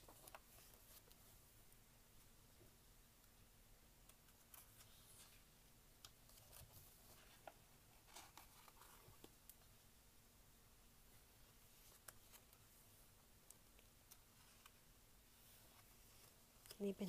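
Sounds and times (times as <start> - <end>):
glossy book pages rustling: 6.2 - 9.6, 11.6 - 12.8, 14.0 - 16.8.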